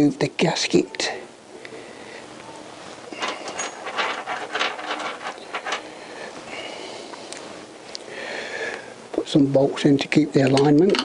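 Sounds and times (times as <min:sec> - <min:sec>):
soft rustling: 0:02.4 - 0:08.0
metal engine parts clicking: 0:03.2 - 0:05.9.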